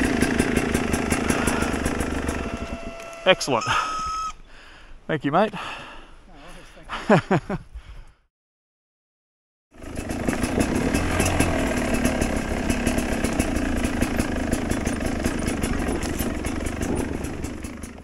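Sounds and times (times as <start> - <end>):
dirt bike engine running: 0.0 - 3.9, 9.8 - 18.0.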